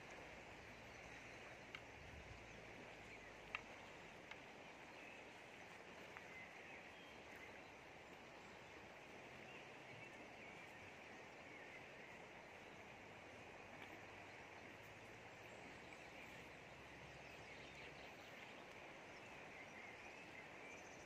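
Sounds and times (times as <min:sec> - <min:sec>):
river water rushing: 0:00.0 - 0:21.0
faint bird chirps: 0:13.8 - 0:21.0.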